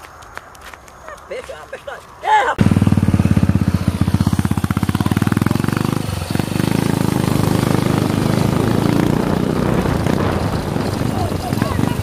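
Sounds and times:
motorcycle engine running: 0:02.6 - 0:12.0.

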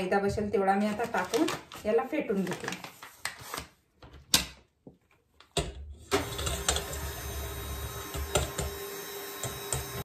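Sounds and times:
electric hand mixer running: 0:06.1 - 0:10.0.

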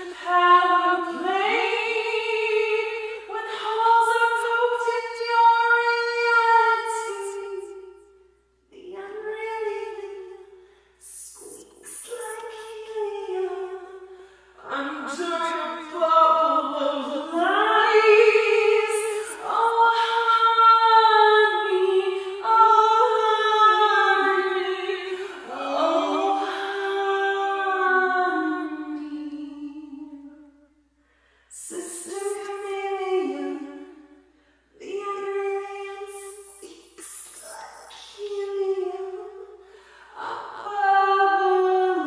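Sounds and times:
unaccompanied singing: 0:14.6 - 0:29.8.

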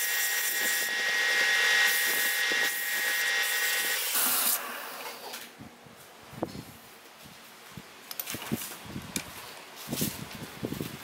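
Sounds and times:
wood lathe whining: 0:00.0 - 0:04.6.

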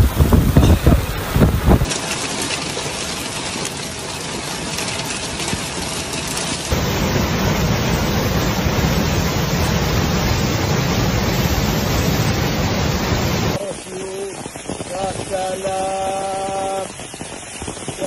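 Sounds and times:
flash flood torrent roaring: 0:00.0 - 0:05.9, 0:06.6 - 0:18.0
hail and rain falling: 0:00.0 - 0:18.0
low rumble: 0:06.7 - 0:13.6.

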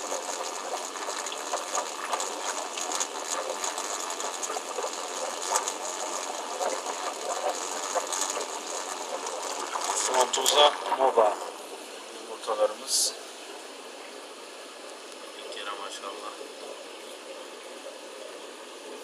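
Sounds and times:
small irregular ticks: 0:00.0 - 0:11.0
running water: 0:00.0 - 0:19.0.

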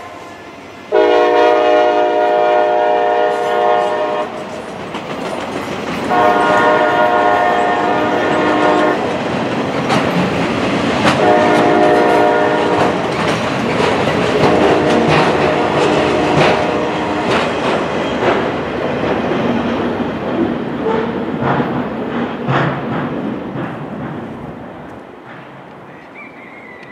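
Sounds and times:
locomotive horn blasts: 0:00.0 - 0:04.4, 0:06.1 - 0:09.0, 0:11.2 - 0:13.0, 0:14.4 - 0:17.4
freight train clacking over rail joints: 0:00.0 - 0:26.9.

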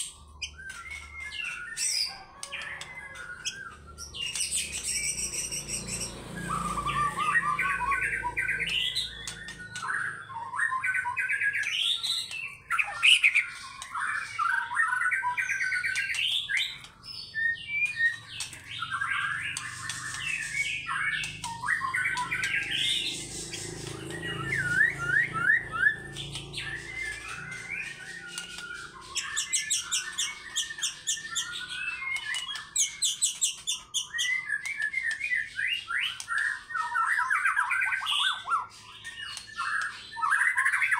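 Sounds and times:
songbird singing whistled phrases: 0:00.0 - 0:40.9
fast repeated high bird notes: 0:03.6 - 0:34.6.

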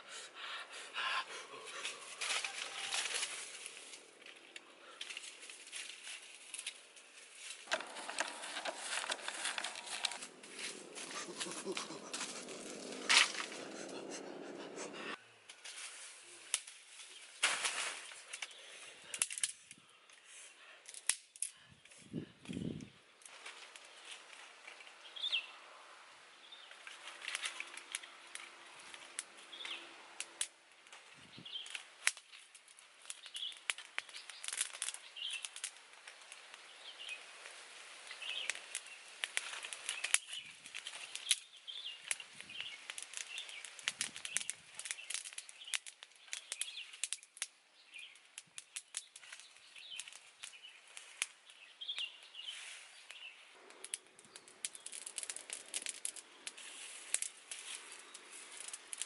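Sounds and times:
twigs snapping and clicking: 0:01.7 - 0:14.0, 0:16.4 - 0:25.0, 0:26.7 - 0:52.4, 0:53.0 - 0:59.0
blowing on embers: 0:07.6 - 0:15.2, 0:48.8 - 0:59.0
birds chirping: 0:07.7 - 0:15.2, 0:29.0 - 0:30.0, 0:39.8 - 0:56.5.

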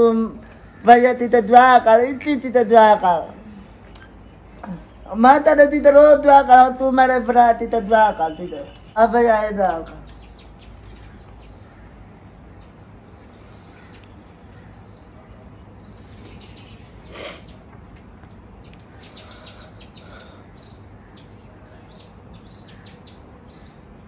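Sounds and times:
faint steady background: 0:00.0 - 0:24.0
small birds chirping: 0:00.0 - 0:24.0.

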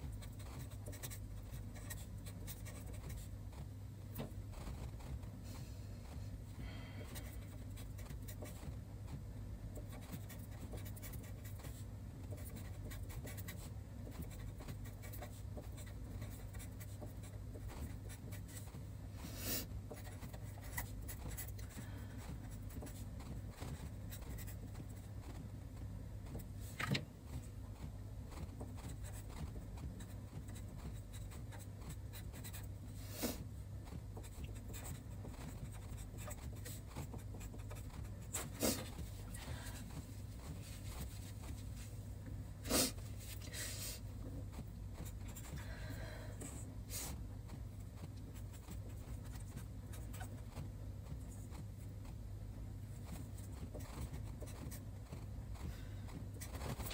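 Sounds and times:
marker pen scratching on paper: 0:00.0 - 0:05.4, 0:07.1 - 0:41.9, 0:42.7 - 0:45.6, 0:46.5 - 0:52.2, 0:52.9 - 0:56.9
steady low hum: 0:00.0 - 0:56.9.

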